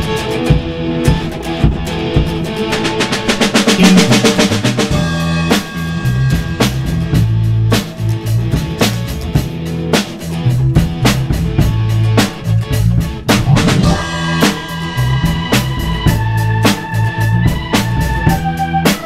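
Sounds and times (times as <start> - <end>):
drum kit beat: 0.0 - 19.0
rock band playing live: 0.0 - 19.0.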